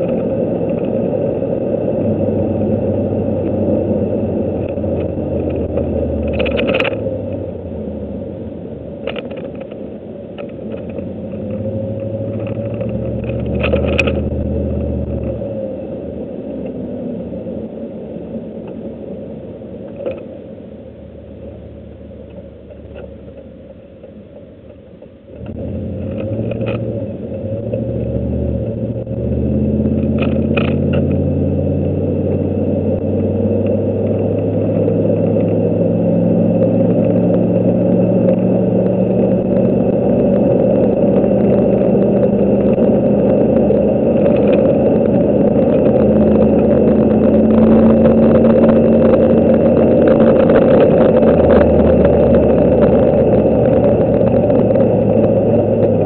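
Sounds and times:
truck engine running: 0:20.9 - 0:56.0.

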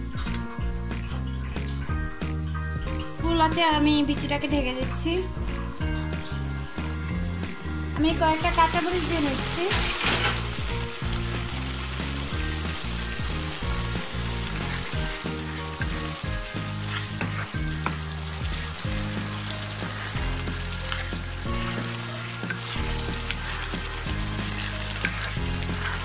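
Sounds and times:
background music: 0:00.0 - 0:26.0
beans frying in oil: 0:00.0 - 0:26.0
spatula stirring in wok: 0:08.5 - 0:26.0.

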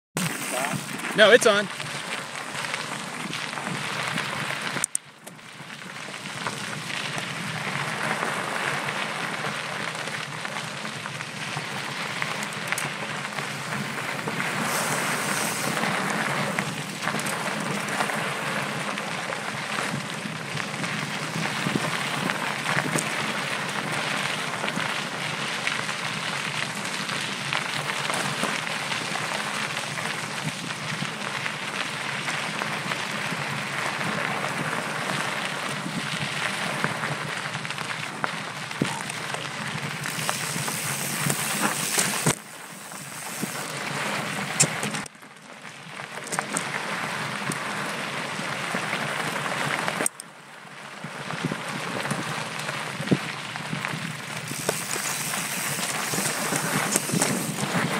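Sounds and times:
bike rattling: 0:00.2 - 0:50.3, 0:50.9 - 0:57.9
bike tyres rolling on gravel: 0:00.2 - 0:57.9
wind on microphone: 0:53.0 - 0:57.9.

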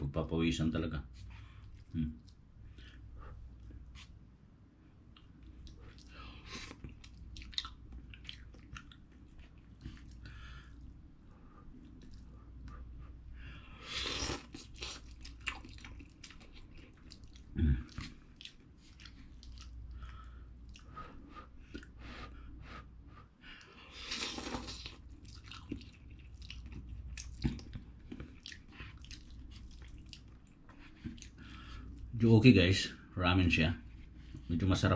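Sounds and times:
wet chewing and mouth clicks: 0:05.1 - 0:11.0, 0:11.7 - 0:12.9, 0:13.9 - 0:21.0, 0:23.6 - 0:32.1.

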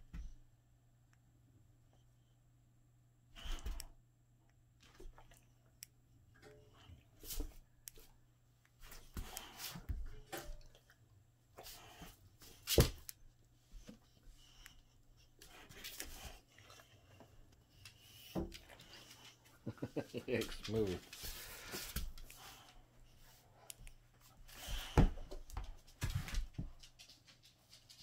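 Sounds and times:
dog paws thumping and scraping: 0:24.4 - 0:28.0.

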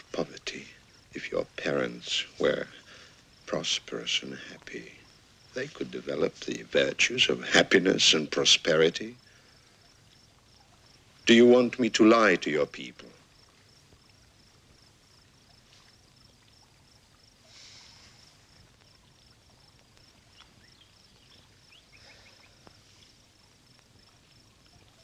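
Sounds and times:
faint crickets chirping: 0:00.0 - 0:25.0.

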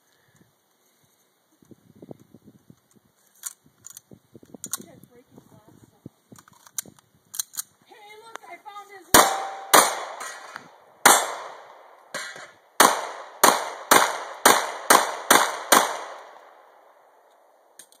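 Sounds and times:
pistol shots echoing: 0:09.1 - 0:16.7.

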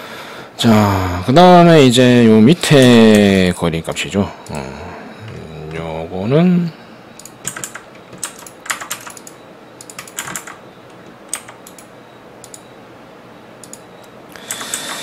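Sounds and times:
computer keyboard typing: 0:07.2 - 0:12.6, 0:13.6 - 0:15.0.

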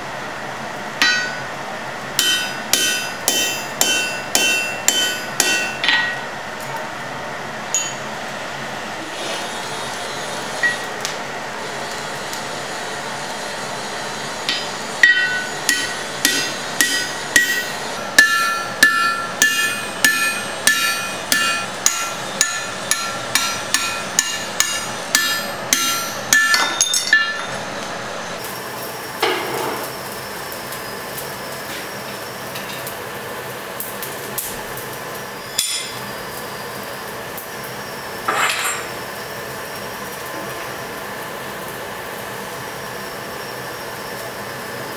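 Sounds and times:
hammer ringing on anvil: 0:01.0 - 0:01.5, 0:02.2 - 0:06.3, 0:07.7 - 0:08.1, 0:10.6 - 0:10.9, 0:14.5 - 0:27.7.

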